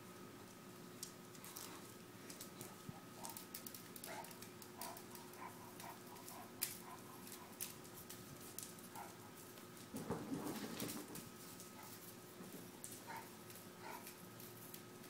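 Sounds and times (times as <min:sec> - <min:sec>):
paws tapping on tile floor: 0:01.4 - 0:14.9.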